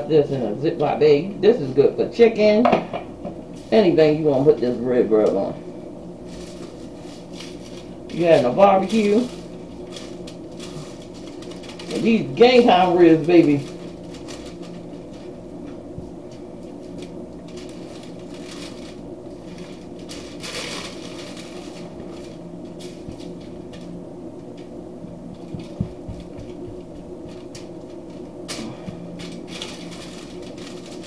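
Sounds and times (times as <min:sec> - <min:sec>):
low hum: 0:02.7 - 0:31.0
foil crinkling: 0:06.2 - 0:24.7, 0:25.3 - 0:31.0
hands patting meat: 0:25.4 - 0:27.5.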